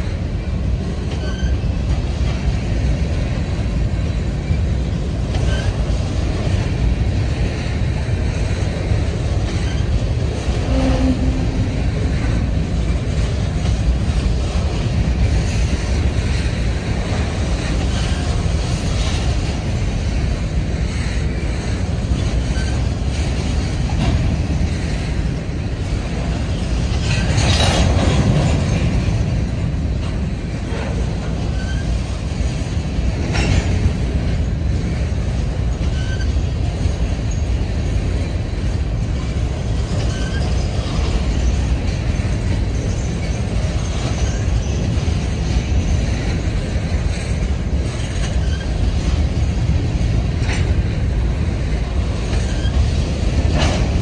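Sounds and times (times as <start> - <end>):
railcar clanks: 0.0 - 54.0
train wheels rumbling on track: 0.0 - 54.0
wheel squeals: 1.0 - 2.2, 4.1 - 6.0, 9.4 - 12.4, 22.2 - 24.2, 30.8 - 32.5, 35.7 - 38.0, 39.6 - 49.4, 52.1 - 54.0.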